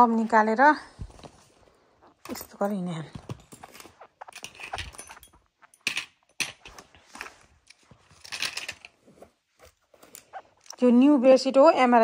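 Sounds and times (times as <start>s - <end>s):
fabric rustling: 0.0s - 5.6s, 6.6s - 10.6s
metal tools clicking into pouch: 3.4s - 6.8s.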